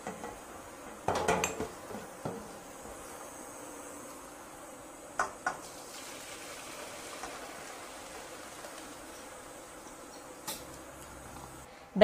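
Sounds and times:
water pouring into colander: 5.6s - 11.6s.

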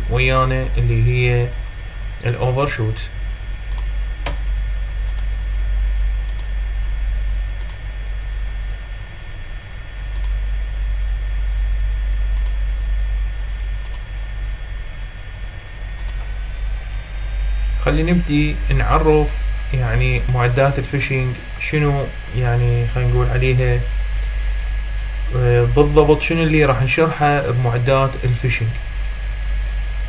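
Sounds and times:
faint high whine: 0.0s - 30.0s
low electrical hum: 0.0s - 30.0s
computer mouse clicks: 3.7s - 4.4s, 5.0s - 5.3s, 6.2s - 6.5s, 7.6s - 7.8s, 10.1s - 10.4s, 12.4s - 12.6s, 13.8s - 14.1s, 16.0s - 16.3s.

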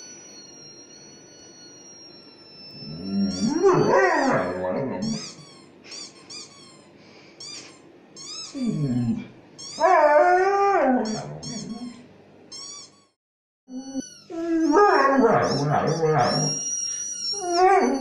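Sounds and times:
squeaky toy squeaks from phone: 2.5s - 18.0s
dog howling: 2.8s - 5.2s, 8.6s - 11.9s, 14.3s - 16.6s, 17.4s - 18.0s.

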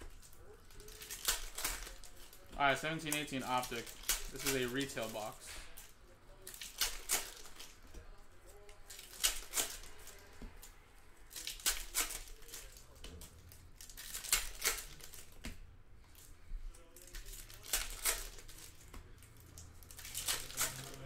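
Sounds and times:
packaging crinkling and ripping: 0.0s - 15.4s, 16.1s - 21.0s.

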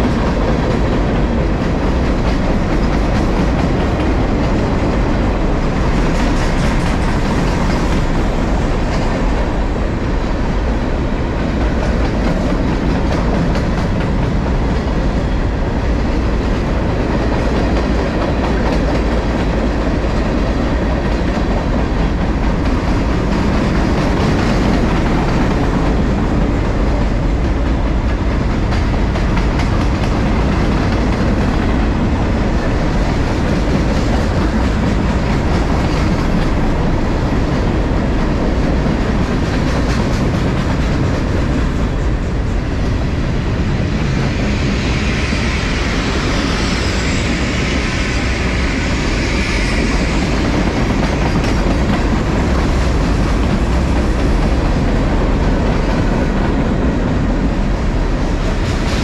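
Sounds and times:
freight train rolling on rails: 0.0s - 59.0s.

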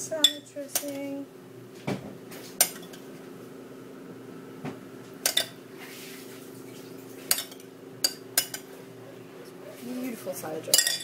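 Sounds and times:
steady low hum: 0.0s - 11.0s
metal utensil clinking on glass: 10.7s - 11.0s.

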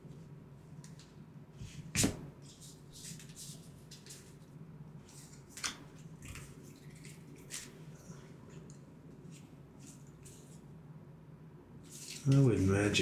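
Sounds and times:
cards sliding and rustling: 0.9s - 4.4s, 11.8s - 12.8s.

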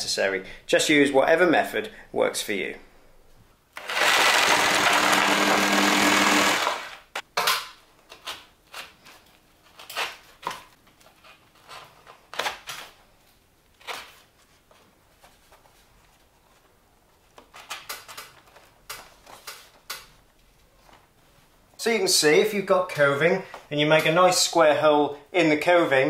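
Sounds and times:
power tool cutting plaster: 3.8s - 7.1s.

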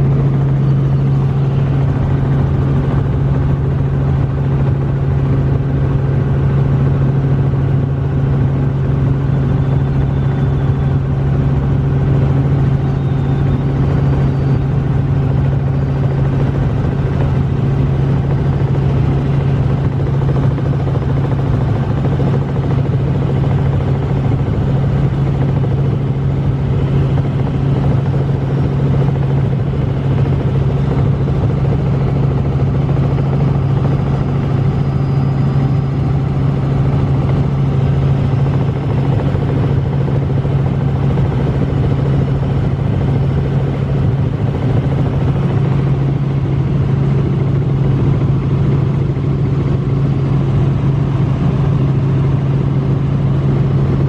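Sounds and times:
helicopter engine and rotor drone: 0.0s - 54.0s.

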